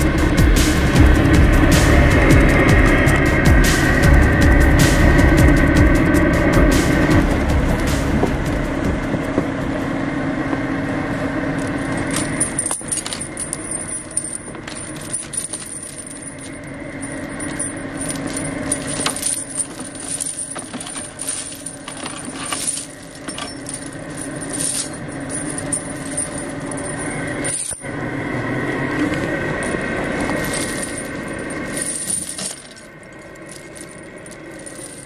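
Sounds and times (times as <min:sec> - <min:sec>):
truck diesel engine idling: 0:00.0 - 0:12.0
snow chains clinking and rattling: 0:11.6 - 0:27.9, 0:29.0 - 0:35.0.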